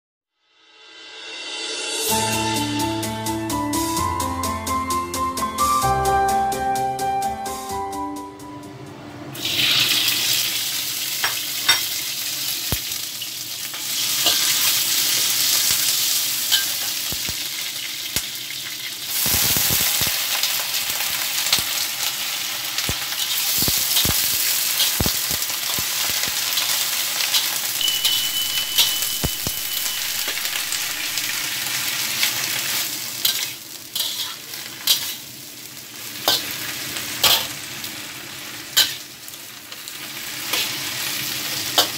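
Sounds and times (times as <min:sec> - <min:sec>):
leaves sizzling in hot oil: 0:09.4 - 0:41.9
metal spatula scraping a pan: 0:14.0 - 0:14.8, 0:33.2 - 0:35.2, 0:37.2 - 0:37.6, 0:38.8 - 0:39.1, 0:40.5 - 0:40.8.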